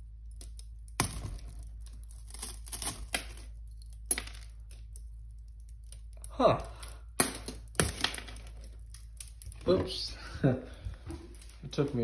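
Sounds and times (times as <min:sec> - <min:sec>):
glass pane cracking: 0:00.4 - 0:05.0, 0:05.6 - 0:10.0.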